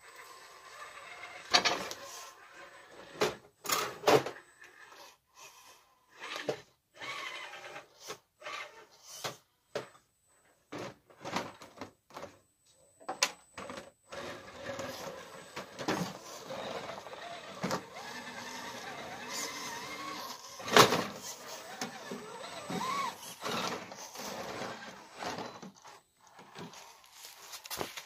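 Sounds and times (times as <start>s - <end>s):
toy car motor and gears: 0.0s - 9.2s, 14.1s - 27.4s.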